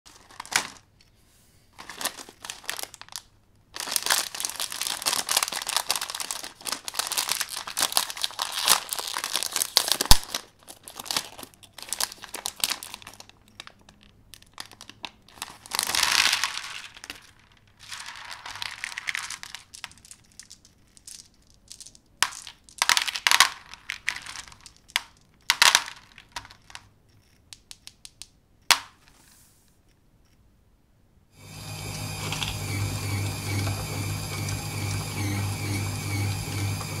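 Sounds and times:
foil snack bag crinkling: 0:00.1 - 0:00.9, 0:01.7 - 0:26.8.

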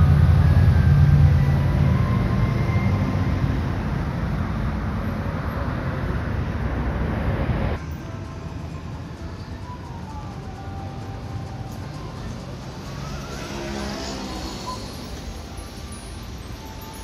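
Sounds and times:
heavy vehicle engine rumble: 0:00.0 - 0:17.0
traffic hum: 0:00.0 - 0:17.0.

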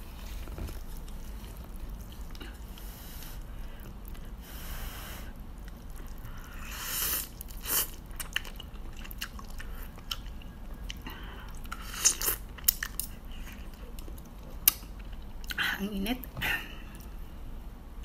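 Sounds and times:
person slurping noodles: 0:06.5 - 0:08.0.

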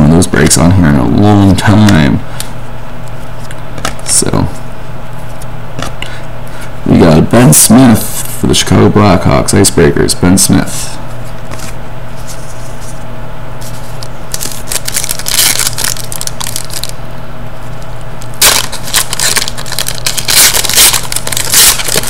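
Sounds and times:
foil wrapper crinkling and tearing: 0:14.0 - 0:17.0, 0:18.4 - 0:22.0.

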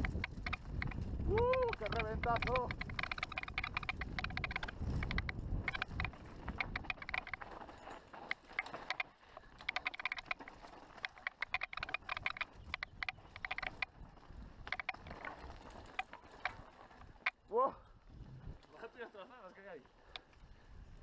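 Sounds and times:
low rumble of tyres: 0:00.0 - 0:19.0
bike clicking and rattling: 0:00.0 - 0:21.0.

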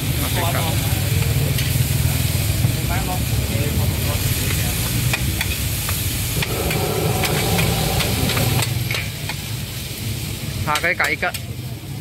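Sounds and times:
food sizzling in a wok: 0:00.0 - 0:12.0
metal spatula scraping pan: 0:06.4 - 0:09.0.

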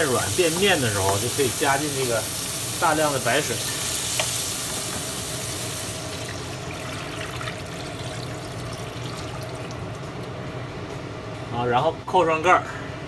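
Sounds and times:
frying sizzle: 0:00.0 - 0:10.5
water pouring into frying pan: 0:05.4 - 0:10.0.

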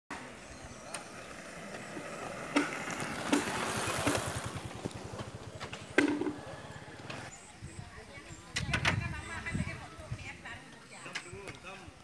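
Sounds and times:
soil scraping: 0:01.8 - 0:07.3.

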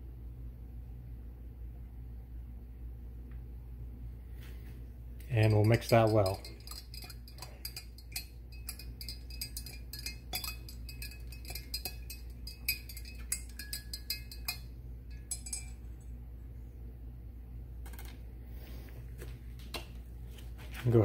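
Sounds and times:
stirring rod clinking glass jar: 0:05.2 - 0:16.1.

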